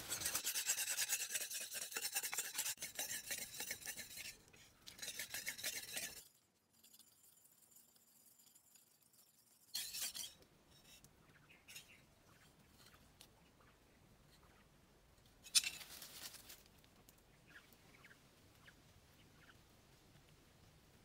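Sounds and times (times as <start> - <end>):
crunching rustle of leaves: 15.6 - 16.8
rustling on dry leaves: 15.6 - 16.8.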